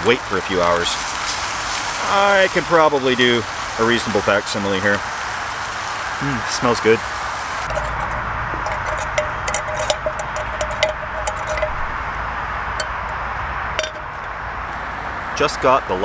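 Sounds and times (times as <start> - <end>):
road traffic rushing: 0.0 - 16.0
metal utensil scraping metal pan: 7.7 - 13.2, 13.8 - 14.3.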